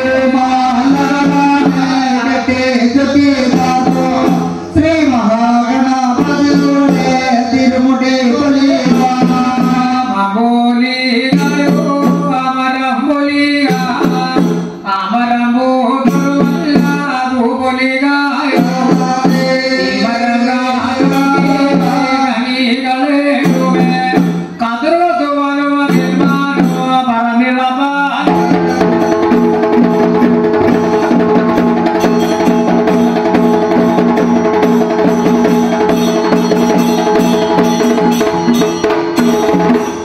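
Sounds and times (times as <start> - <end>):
person singing: 0.0 - 29.4
drums and percussion: 0.0 - 40.0.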